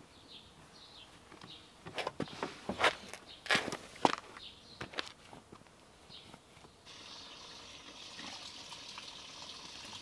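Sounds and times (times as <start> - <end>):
crunching scrapes: 1.9 - 5.4.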